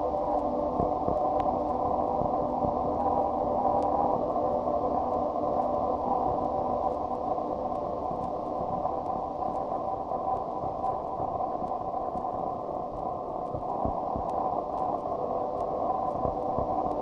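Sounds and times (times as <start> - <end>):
static-like noise drone: 0.0 - 17.0
faint clicks: 7.7 - 17.0.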